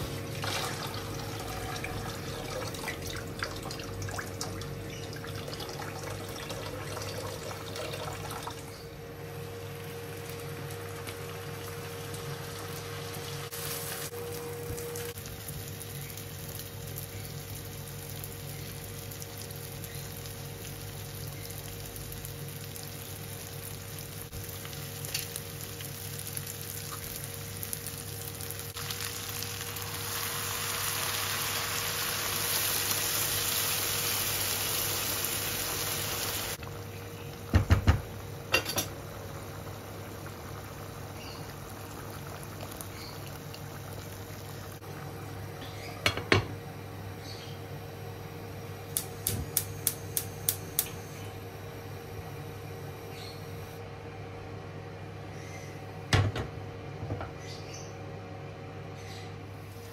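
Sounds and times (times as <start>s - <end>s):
food frying in butter: 9.6s - 46.1s.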